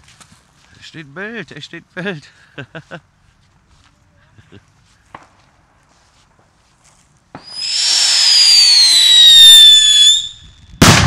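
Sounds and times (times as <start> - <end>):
firework bang: 7.4 - 11.0
firework whistle: 7.4 - 11.0.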